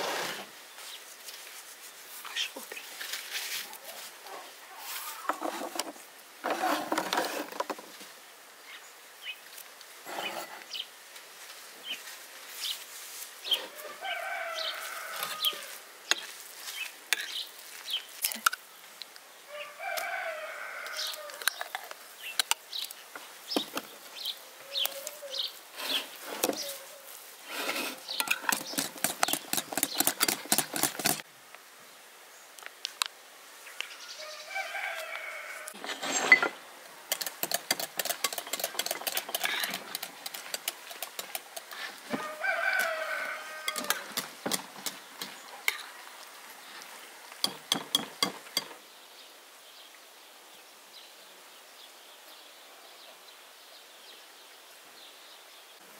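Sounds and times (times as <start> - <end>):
rooster crowing: 13.7 - 15.8, 19.5 - 21.4, 34.1 - 35.8, 42.1 - 44.2.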